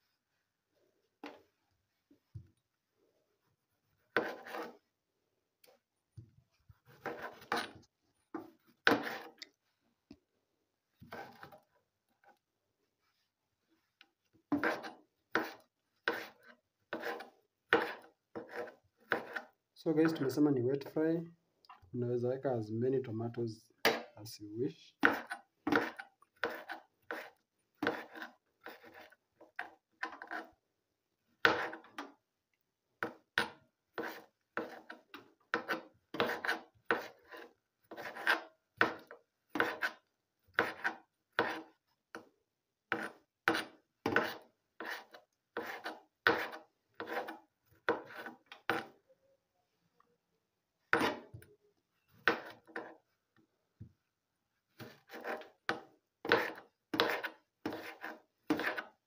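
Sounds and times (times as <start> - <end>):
knife chopping on cutting board: 14.5 - 16.3, 17.0 - 19.4, 25.0 - 28.9, 40.6 - 41.7, 51.0 - 51.3, 54.8 - 58.9.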